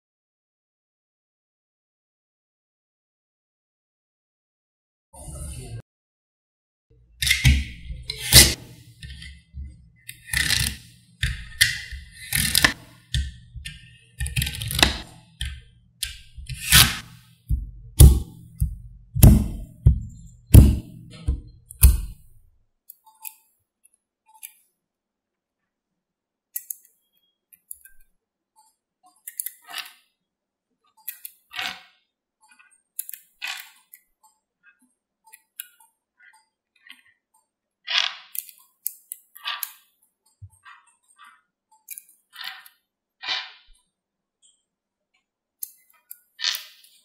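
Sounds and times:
magnetic balls clicking: 7.2s - 16.8s.

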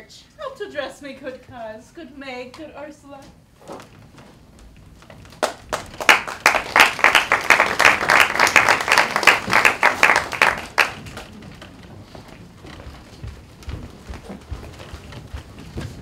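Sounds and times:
audience applauding: 5.4s - 11.4s.

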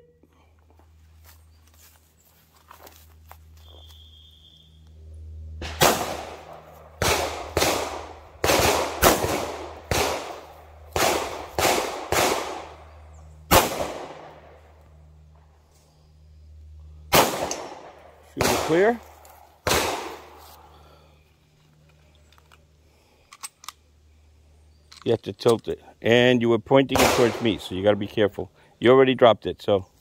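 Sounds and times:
pistol shots with echo: 5.6s - 12.9s, 13.5s - 14.5s, 17.1s - 19.0s, 19.6s - 20.3s, 26.9s - 27.8s.

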